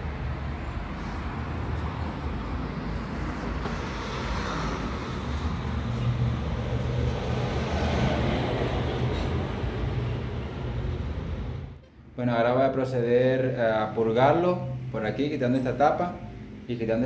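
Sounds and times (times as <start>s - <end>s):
wash of noise: 0.0s - 11.6s.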